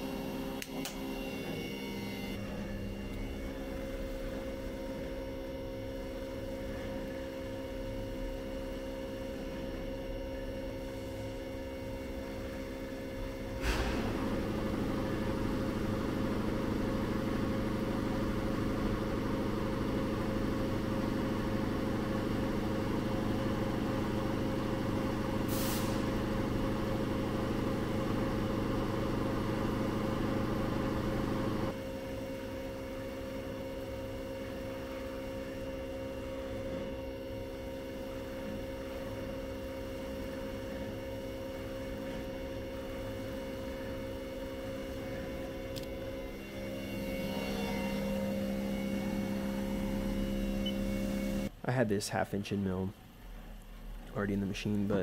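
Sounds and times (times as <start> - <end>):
shop machinery humming: 0.0 - 51.9
brief high hiss: 13.6 - 14.2, 25.5 - 26.1.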